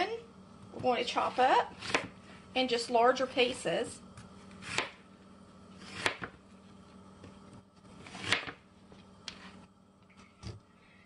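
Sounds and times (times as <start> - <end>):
knife chopping on cutting board: 1.7 - 2.1, 4.6 - 5.0, 5.8 - 6.4, 8.0 - 8.6.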